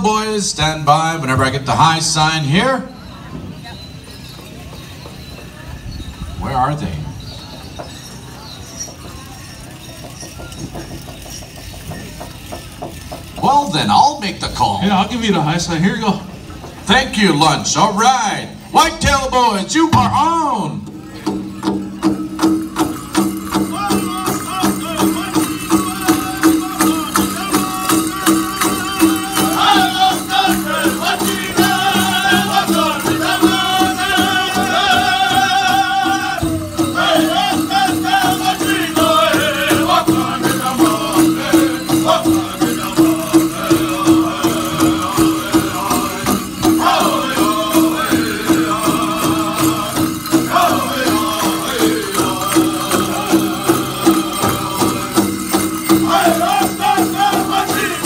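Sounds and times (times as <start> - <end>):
men singing in high voices: 23.2 - 58.0.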